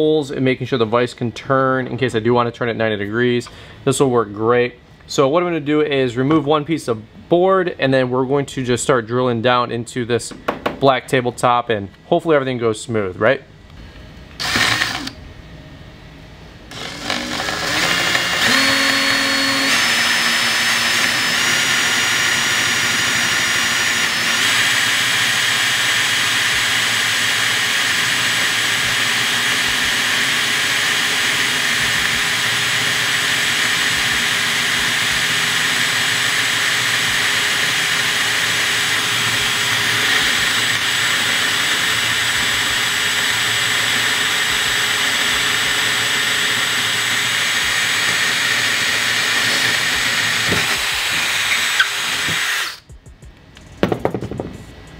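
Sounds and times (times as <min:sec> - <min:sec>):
cordless drill boring into wood: 0:14.4 - 0:15.2, 0:16.7 - 0:52.9.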